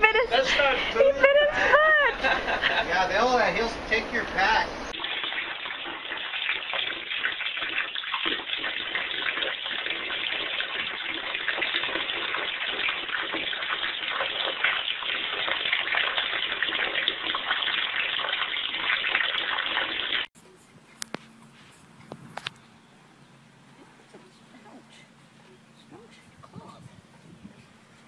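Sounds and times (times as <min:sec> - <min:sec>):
water splashing: 0:03.9 - 0:20.3
tap water running into bathtub: 0:04.9 - 0:20.3.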